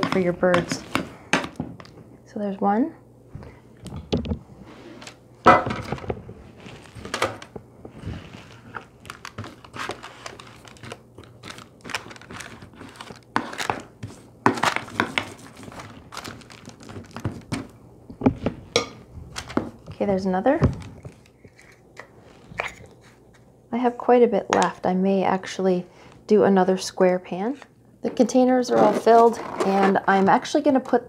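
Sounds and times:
parchment paper crinkling: 6.5s - 17.7s, 20.6s - 21.8s.

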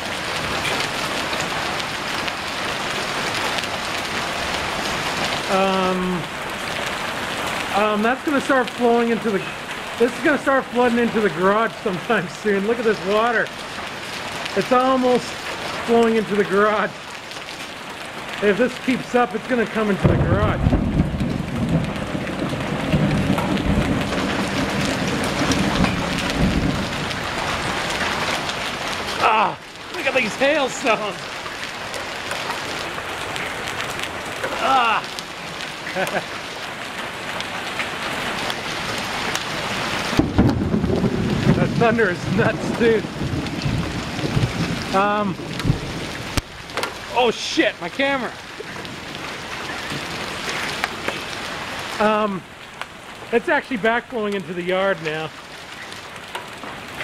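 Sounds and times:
heavy rain and hail on pavement: 0.0s - 57.0s
man's voice holding a sound: 5.5s - 6.3s, 7.7s - 13.5s, 14.6s - 17.0s, 18.4s - 20.6s, 29.2s - 31.2s, 41.6s - 43.1s, 44.9s - 45.4s, 47.1s - 48.4s, 52.0s - 52.5s, 53.3s - 55.3s.

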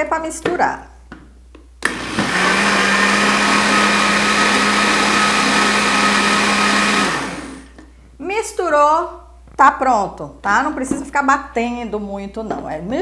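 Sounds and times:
blender running: 1.8s - 7.8s.

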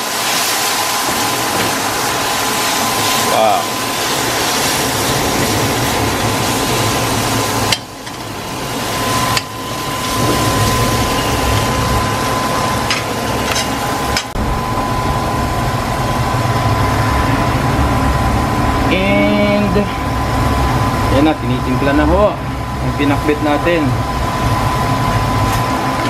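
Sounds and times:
wok stir-fry hiss: 0.0s - 14.2s
low hum: 1.4s - 23.0s.

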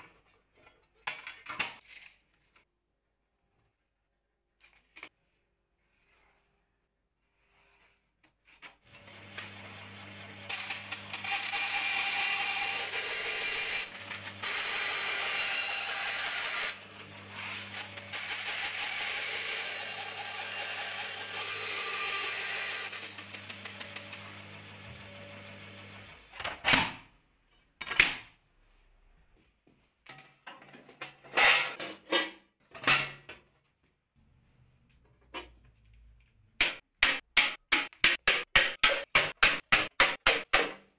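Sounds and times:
bandsaw cutting metal sheet: 9.0s - 26.3s.

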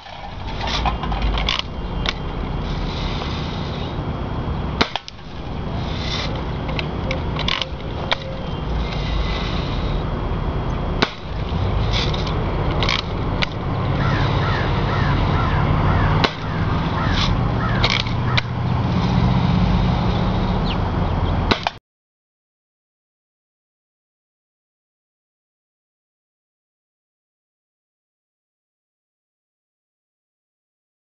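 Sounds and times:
steady low rumble: 0.0s - 21.6s
bird chirping: 20.6s - 21.4s.

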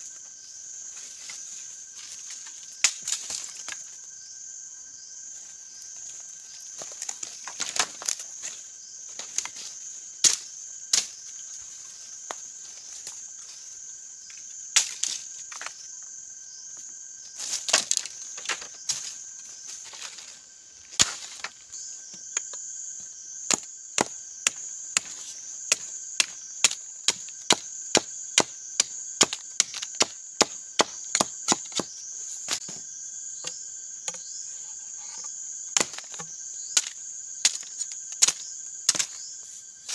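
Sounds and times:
insects droning: 0.0s - 39.9s
machete chopping wooden sticks: 10.2s - 11.2s, 14.8s - 15.2s, 21.0s - 21.5s, 23.4s - 32.8s, 35.0s - 39.3s.

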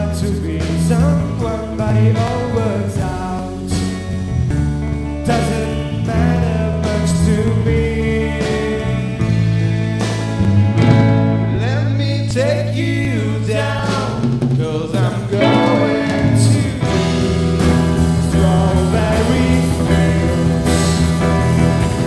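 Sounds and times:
rock band playing: 0.0s - 22.0s
people singing: 5.3s - 10.4s, 11.6s - 22.0s.

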